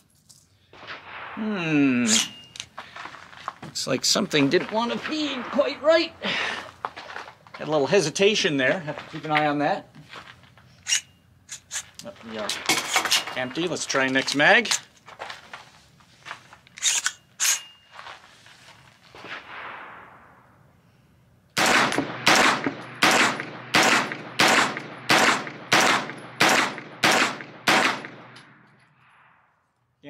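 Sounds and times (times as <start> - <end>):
rifle gunshots: 0.8 - 1.8, 19.2 - 20.5, 21.6 - 28.6.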